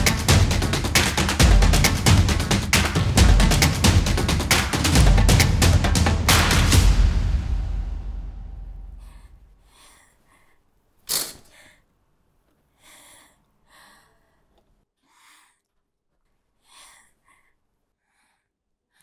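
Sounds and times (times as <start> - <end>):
low boom: 5.0 - 9.5
person breathing and sniffing: 8.8 - 11.9, 12.7 - 15.6.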